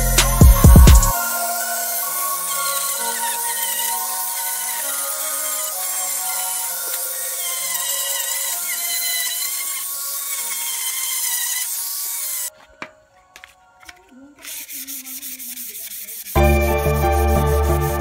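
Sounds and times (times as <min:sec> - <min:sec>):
loud electronic music: 0:00.0 - 0:04.2, 0:16.4 - 0:18.0
angle grinder sanding metal: 0:00.0 - 0:12.5, 0:13.8 - 0:18.0
sandpaper rubbing on metal: 0:14.3 - 0:18.0.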